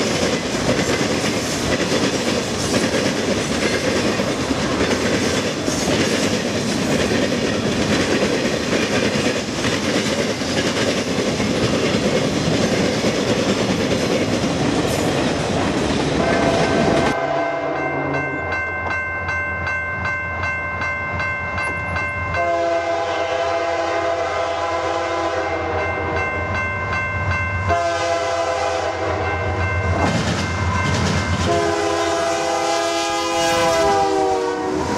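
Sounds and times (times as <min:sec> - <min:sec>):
train wheels clacking on rails: 0:00.0 - 0:17.2, 0:29.6 - 0:32.6
locomotive air horn: 0:16.2 - 0:18.3, 0:22.4 - 0:26.1, 0:27.7 - 0:29.4, 0:31.4 - 0:34.9.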